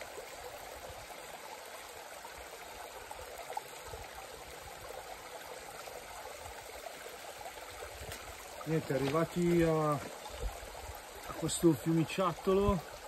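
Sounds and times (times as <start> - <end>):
stream trickling over rocks: 0.0 - 13.0.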